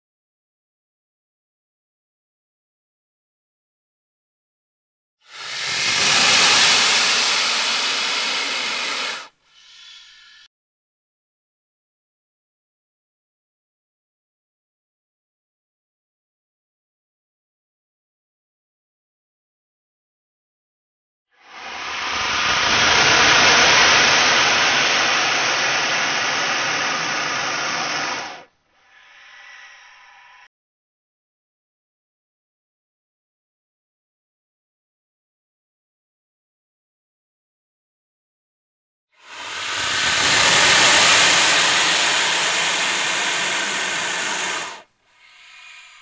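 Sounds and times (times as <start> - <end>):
snake hiss: 5.2 - 10.5, 21.4 - 30.5, 39.2 - 46.0.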